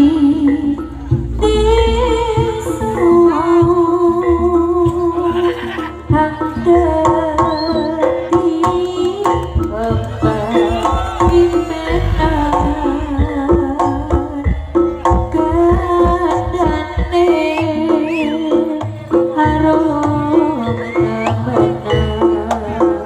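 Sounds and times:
sustained wavering melody: 9.6 - 14.6.

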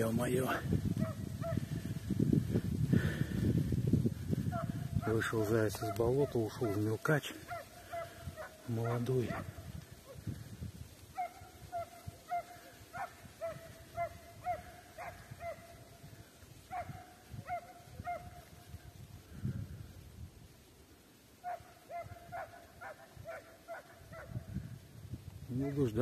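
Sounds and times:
hound barking: 1.0 - 1.7, 4.5 - 10.2, 11.1 - 16.0, 16.6 - 18.8, 21.4 - 24.8.

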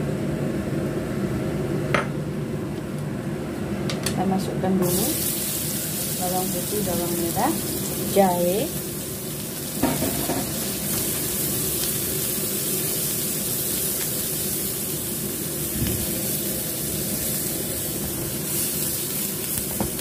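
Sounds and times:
garlic sizzling in hot oil: 4.8 - 20.0.

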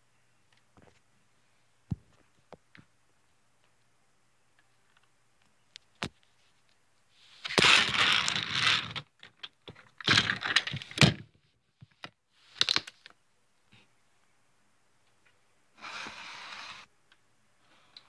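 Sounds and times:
plastic toys clattering and scraping: 7.4 - 13.1.

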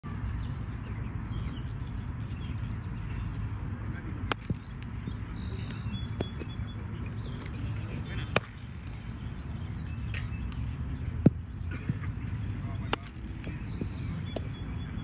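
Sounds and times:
baseball bat hitting ball: 8.2 - 8.7.

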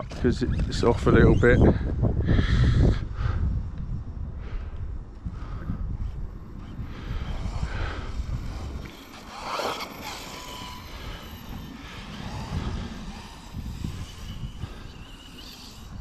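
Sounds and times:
wind buffeting microphone: 0.0 - 16.0
rc car electric motor whining: 0.1 - 1.9, 6.5 - 16.0.

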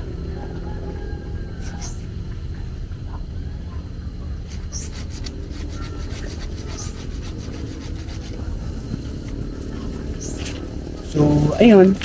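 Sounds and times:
steady low rumble: 0.0 - 12.0
hand saw rasping through branch: 4.5 - 8.8.

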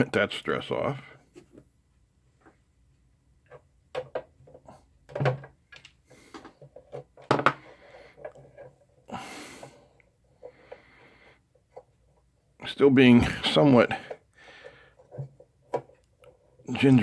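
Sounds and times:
tools clicking and knocking on wood: 3.4 - 8.9, 13.5 - 17.0.

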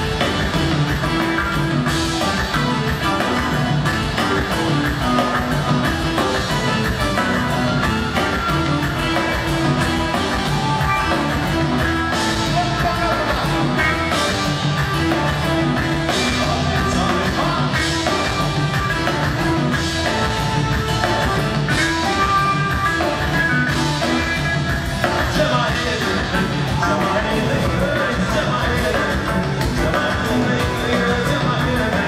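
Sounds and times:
drum kit: 0.0 - 32.0
electric bass: 0.0 - 32.0
electric guitar: 0.0 - 32.0
keyboards: 0.0 - 32.0
man singing lead vocals: 15.4 - 18.7, 25.0 - 32.0.

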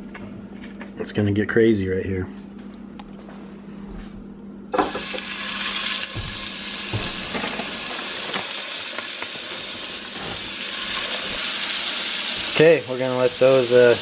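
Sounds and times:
meat sizzling in frying pan: 4.8 - 14.0.

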